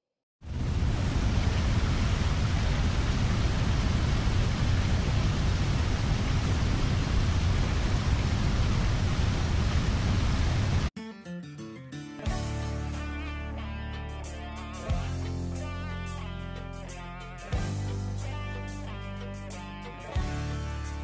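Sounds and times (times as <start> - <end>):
rushing noise with low rumble: 0.4 - 10.9.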